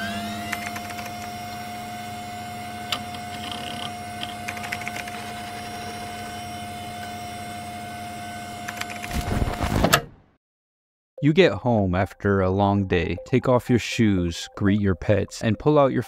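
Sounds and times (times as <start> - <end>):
steady high electronic tone: 0.1 - 8.7.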